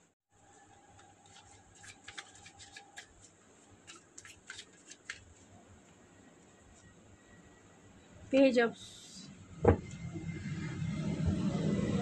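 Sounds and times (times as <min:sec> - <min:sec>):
cards clicking and rustling: 0:00.9 - 0:05.4.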